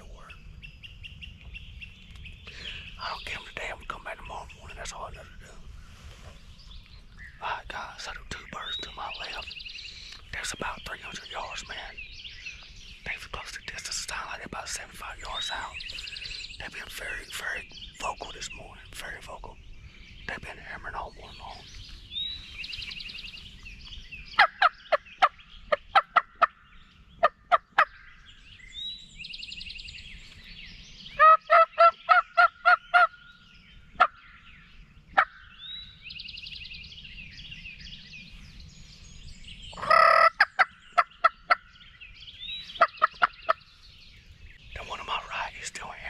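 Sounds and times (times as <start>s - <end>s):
songbirds singing faintly: 0.0s - 46.0s
turkey yelps: 31.2s - 33.1s, 39.8s - 41.6s.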